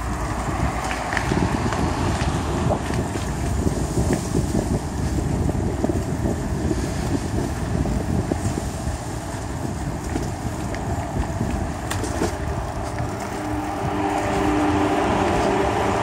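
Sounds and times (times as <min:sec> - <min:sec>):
bicycle rolling on rough path: 0:00.0 - 0:16.0
wind buffeting microphone: 0:00.0 - 0:16.0
steady hum: 0:08.1 - 0:16.0.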